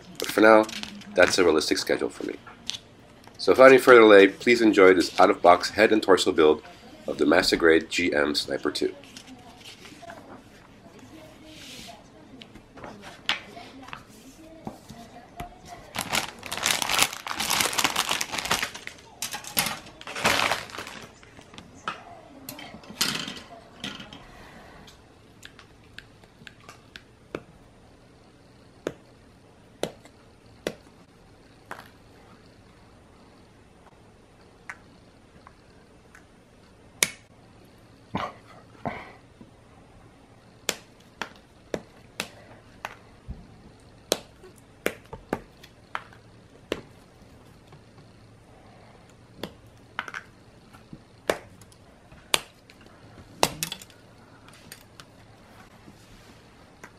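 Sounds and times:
plastic bag rustling: 0:15.7 - 0:21.4.

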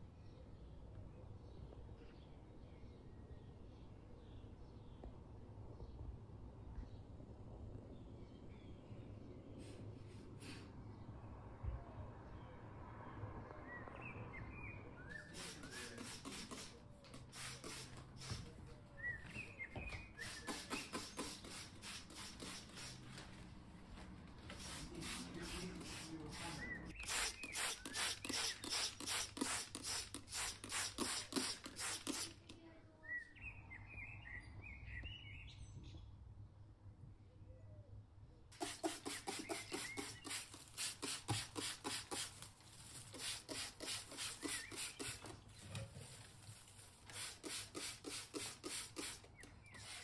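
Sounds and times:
birds chirping: 0:13.1 - 0:36.1, 0:38.5 - 0:50.0
spray bottle squirting: 0:15.3 - 0:18.6, 0:20.0 - 0:23.2, 0:24.5 - 0:32.6, 0:38.5 - 0:50.0.

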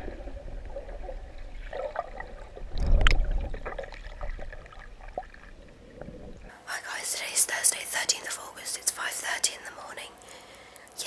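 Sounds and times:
low underwater rush: 0:00.0 - 0:06.5
water moving and gurgling: 0:00.0 - 0:06.5.

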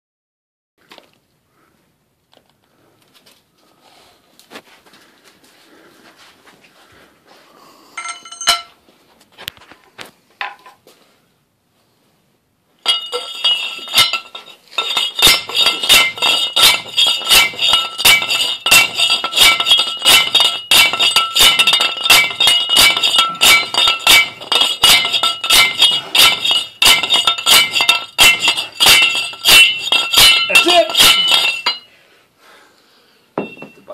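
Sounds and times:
metal clinks: 0:08.0 - 0:08.8, 0:12.8 - 0:32.0, 0:33.4 - 0:33.9
hammer blows on steel tube: 0:12.9 - 0:31.9.

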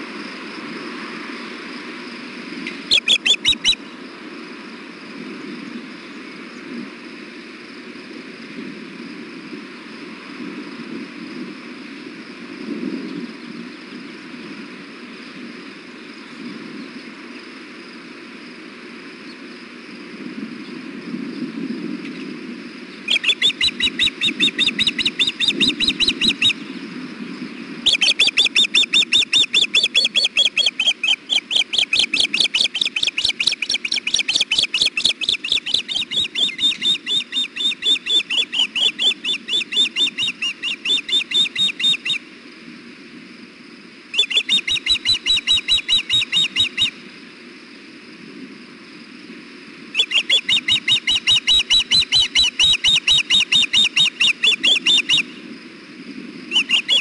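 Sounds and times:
ospreys calling: 0:02.7 - 0:04.0, 0:23.0 - 0:26.7, 0:27.8 - 0:42.3, 0:44.1 - 0:47.0, 0:49.9 - 0:55.4, 0:56.5 - 0:57.0.

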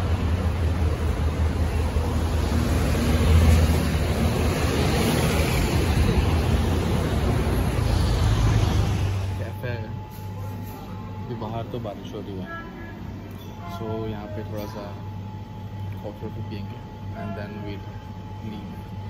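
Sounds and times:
traffic rumble: 0:00.0 - 0:11.4.

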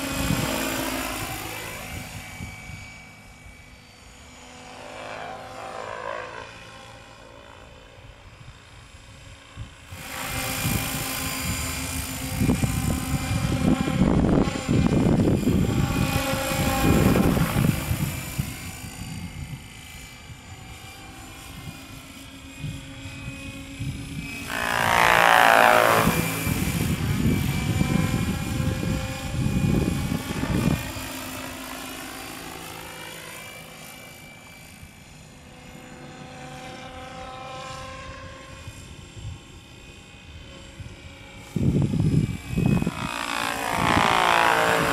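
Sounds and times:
wind rumbling on microphone: 0:00.0 - 0:03.1, 0:08.0 - 0:31.6, 0:38.0 - 0:44.9
model helicopter rotor whine: 0:00.0 - 0:44.9.

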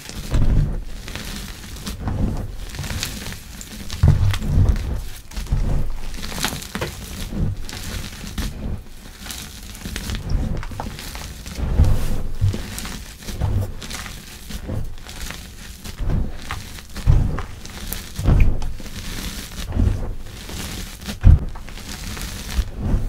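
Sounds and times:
hands crushing chalk in a bowl: 0:00.0 - 0:22.7
palms thumping into powder: 0:00.2 - 0:08.4.

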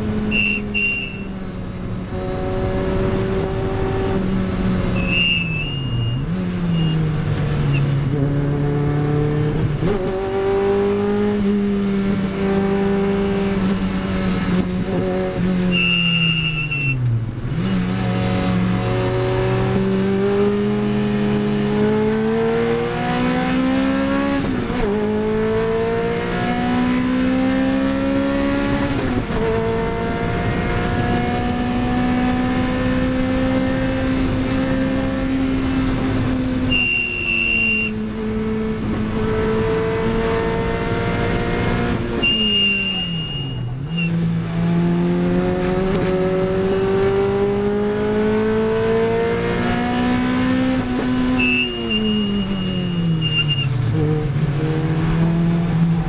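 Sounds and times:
tyre squeal: 0:00.2 - 0:01.4, 0:04.9 - 0:07.1, 0:15.6 - 0:17.1, 0:36.6 - 0:38.0, 0:42.2 - 0:44.3, 0:51.2 - 0:53.9
car engine accelerating: 0:01.4 - 0:16.4, 0:17.0 - 0:36.8, 0:37.4 - 0:56.0.

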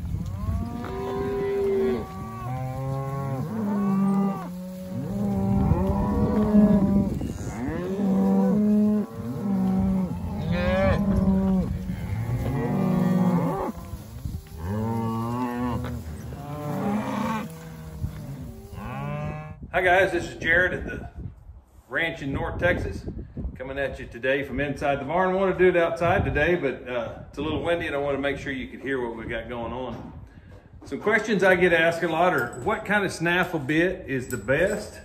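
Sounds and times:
cattle mooing: 0:00.3 - 0:13.9, 0:14.6 - 0:19.6.

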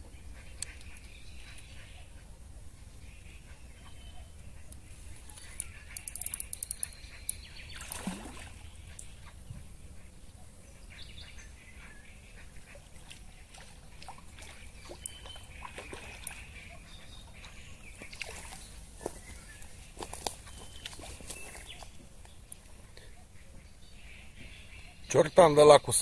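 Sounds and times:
faint bird calls: 0:00.0 - 0:25.4
fishing reel clicking: 0:05.6 - 0:07.0.

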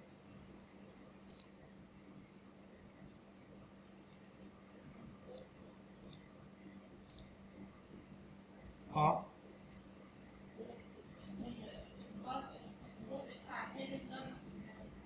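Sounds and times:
faint electrical hum: 0:00.0 - 0:15.0
computer mouse clicking: 0:01.3 - 0:01.5, 0:04.1 - 0:04.3, 0:05.3 - 0:06.3, 0:07.0 - 0:07.3.

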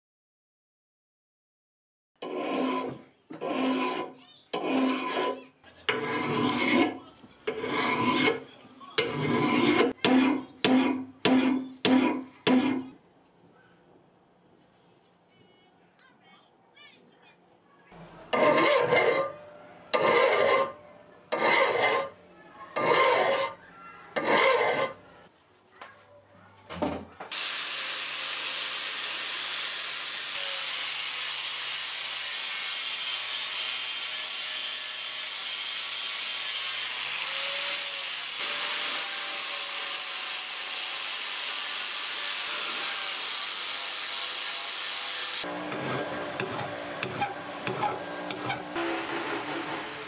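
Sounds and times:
angle grinder on steel: 0:02.2 - 0:13.0, 0:18.3 - 0:22.2, 0:22.8 - 0:23.6, 0:24.2 - 0:25.0, 0:27.3 - 0:50.0
hand file on steel: 0:02.2 - 0:13.0, 0:18.3 - 0:22.2, 0:22.8 - 0:23.6, 0:24.2 - 0:25.0, 0:28.3 - 0:49.9.

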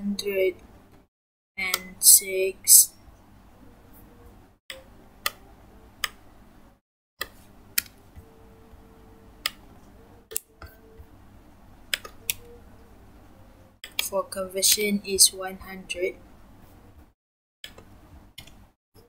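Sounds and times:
faint background noise: 0:01.6 - 0:17.1
laptop keys and mouse clicking: 0:11.9 - 0:12.5, 0:17.6 - 0:18.6.

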